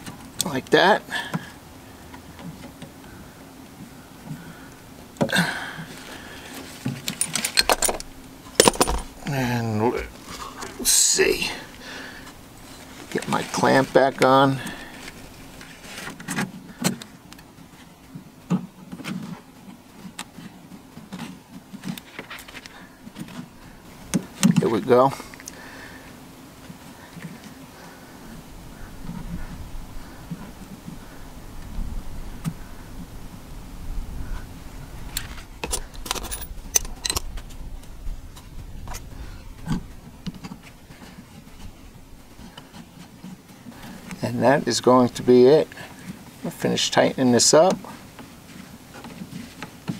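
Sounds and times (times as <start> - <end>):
soft handling noise: 1.4 - 31.2, 35.0 - 49.9
metal parts and tools clinking: 7.0 - 9.4, 35.6 - 37.3.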